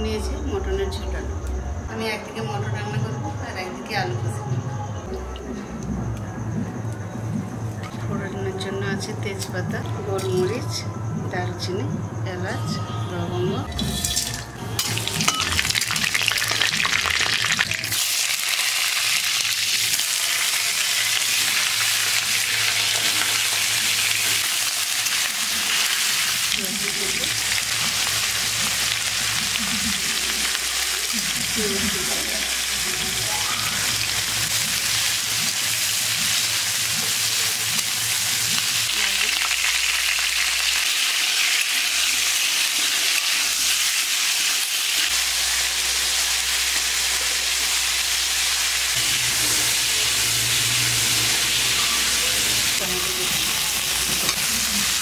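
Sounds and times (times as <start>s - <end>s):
oil sizzling in pan: 13.8s - 55.0s.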